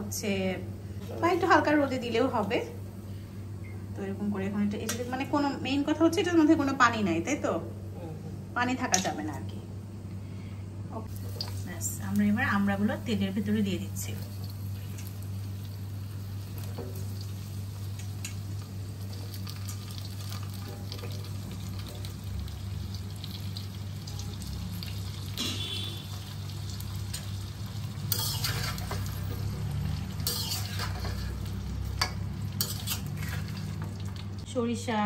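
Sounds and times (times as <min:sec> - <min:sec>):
oil sizzling in a wok: 0:11.0 - 0:34.5
metal spatula scraping a wok: 0:28.0 - 0:33.9.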